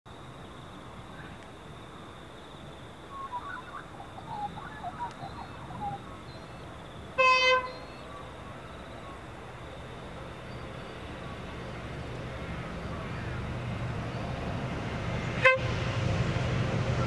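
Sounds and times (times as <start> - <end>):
birds chirping: 2.6 - 14.8
locomotive horn blast: 7.2 - 7.8, 15.2 - 16.0.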